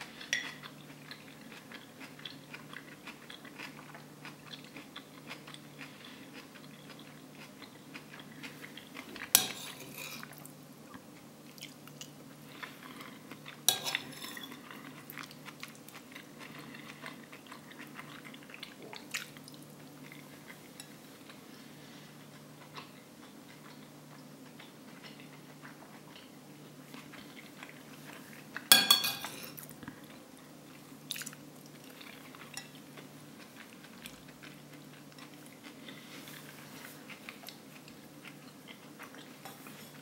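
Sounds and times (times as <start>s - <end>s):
soft chewing: 0.0s - 40.0s
metal spoon scraping a plate: 13.7s - 14.6s.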